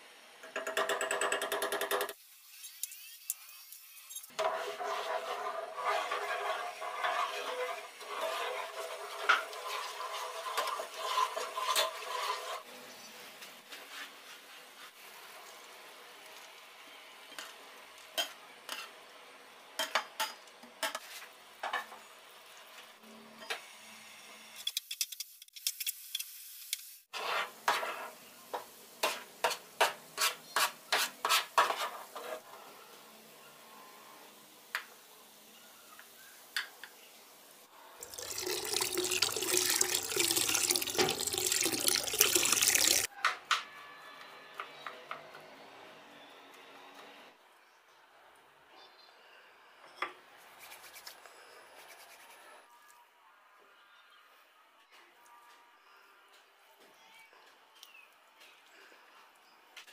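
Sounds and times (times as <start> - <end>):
spoon scraping and clinking on pan: 4.1 - 12.6
syrup bubbling in a pan: 38.0 - 43.1.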